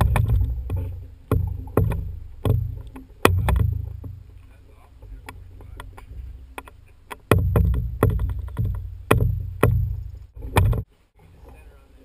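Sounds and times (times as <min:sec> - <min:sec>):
trailer knocking and rattling: 0:00.0 - 0:04.4, 0:05.0 - 0:10.9.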